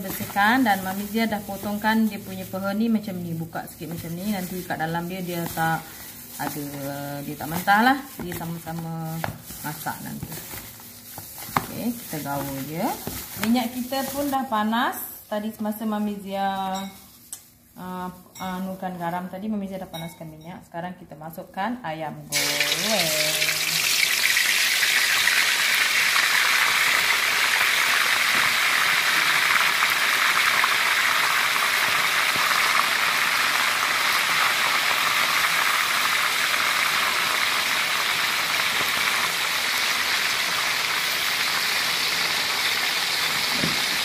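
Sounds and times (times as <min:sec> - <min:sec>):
chicken deep-frying in oil: 0:22.3 - 0:44.0.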